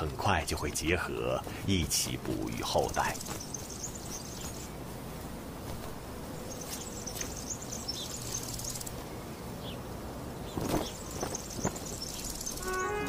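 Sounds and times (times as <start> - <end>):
insects buzzing: 0.0 - 13.0
bird chirps: 10.4 - 13.0.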